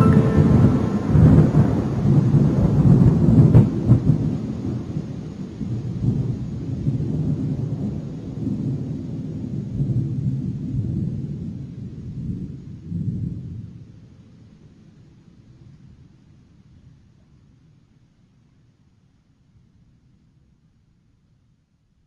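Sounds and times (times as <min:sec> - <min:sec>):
thunder rumbling: 0:00.0 - 0:05.2.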